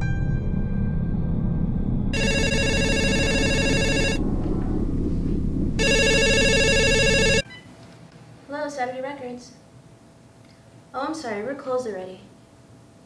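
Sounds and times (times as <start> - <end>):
low steady drone: 0.0 - 7.4
cordless telephone ringing: 2.2 - 4.2, 5.8 - 7.4.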